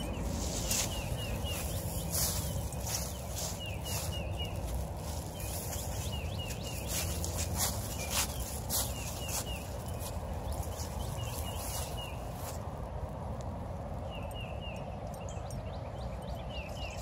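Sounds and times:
small bird chirping: 0.0 - 12.6, 14.0 - 17.0
footsteps crunching through dry leaves: 0.0 - 13.1.

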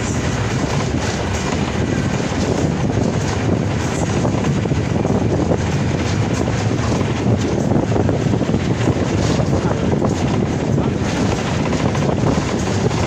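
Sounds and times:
bus body rattling: 0.0 - 13.0
bus engine rumble: 0.0 - 13.0
road noise: 0.0 - 13.0.

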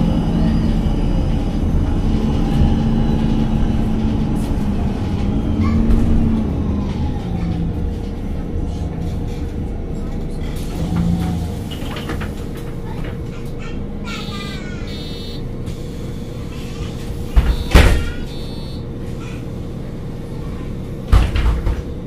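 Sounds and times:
bus engine idling: 0.0 - 22.0
short high beeps: 14.2 - 15.4, 17.5 - 18.8.

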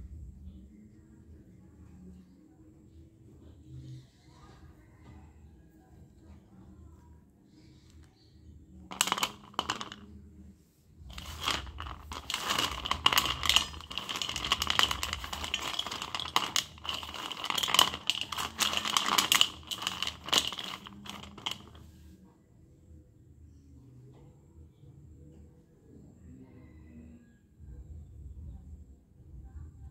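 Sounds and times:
pencils clattering in metal plate: 8.9 - 10.0, 11.1 - 21.8.

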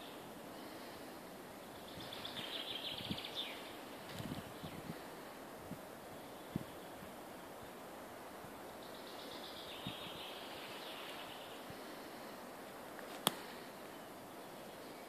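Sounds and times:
faint steady hiss: 0.0 - 15.0
sharp click: 13.0 - 13.4.

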